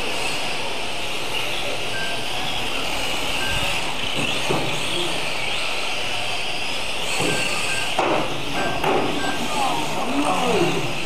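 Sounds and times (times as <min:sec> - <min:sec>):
toy car electric motors whining: 0:00.0 - 0:11.0
short beeps: 0:01.9 - 0:02.2.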